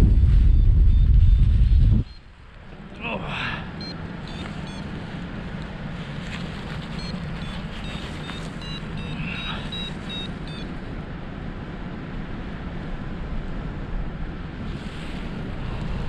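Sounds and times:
airflow rushing over microphone: 0.0s - 16.0s
short high electronic beeps: 3.8s - 4.8s, 7.0s - 10.7s.

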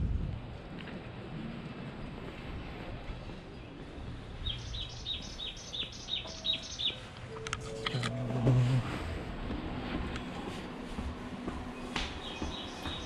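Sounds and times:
low hum: 0.0s - 13.0s
bird chirping: 4.4s - 7.4s, 11.8s - 13.0s.

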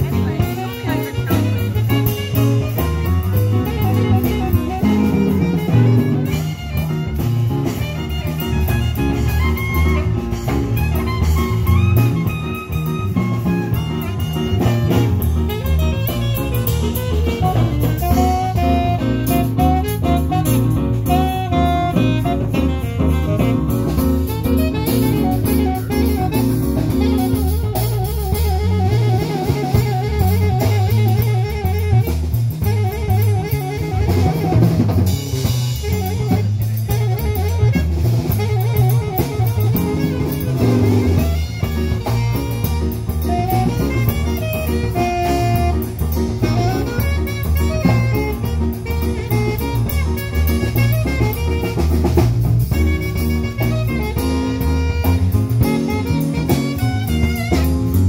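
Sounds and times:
jazz band playing: 0.0s - 58.0s.

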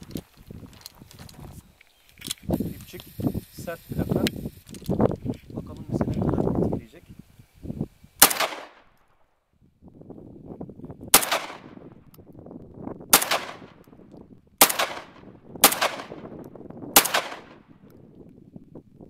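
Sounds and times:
shotgun shots: 8.2s - 8.9s, 11.1s - 11.8s, 13.1s - 13.8s, 14.6s - 16.3s, 17.0s - 17.7s.

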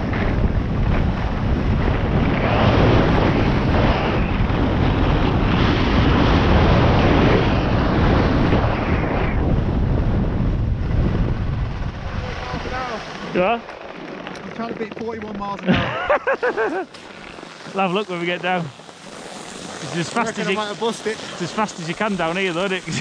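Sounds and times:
skis running over snow: 0.0s - 5.7s, 11.6s - 23.0s
wind buffeting microphone: 0.0s - 16.0s.

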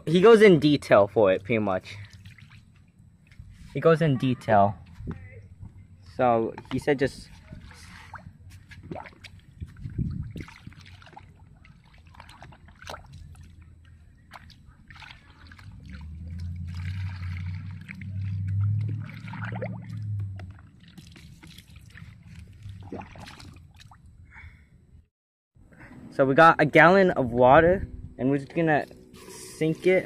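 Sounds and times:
water sloshing in a bucket: 0.0s - 24.2s, 28.4s - 30.0s
low rumble: 13.2s - 25.1s.

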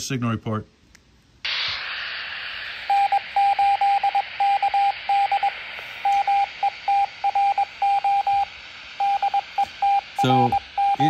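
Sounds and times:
radio static hiss: 1.5s - 11.0s
morse code beeps: 2.9s - 11.0s.

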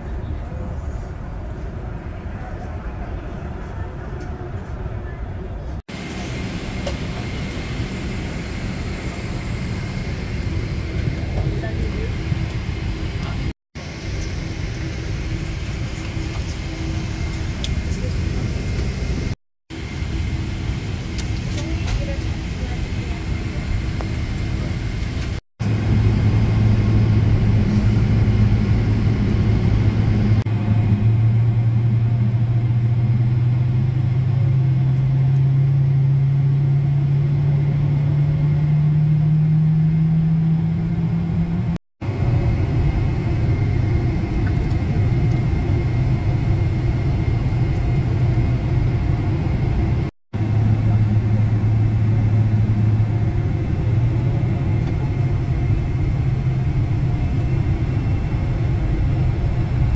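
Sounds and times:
airplane cabin rumble: 0.0s - 59.9s
low hum rising in pitch: 23.8s - 59.9s.

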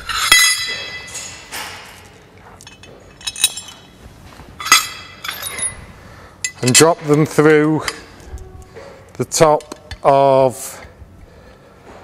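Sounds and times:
bolts and washers clinking: 0.1s - 4.0s, 4.6s - 5.8s, 6.4s - 8.1s.

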